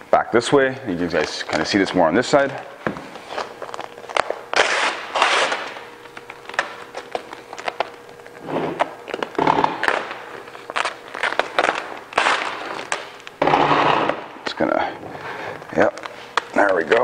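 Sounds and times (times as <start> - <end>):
vinyl wrap crackling: 0.5 - 13.4, 14.0 - 17.0
vinyl wrap rasping peel: 3.1 - 14.3.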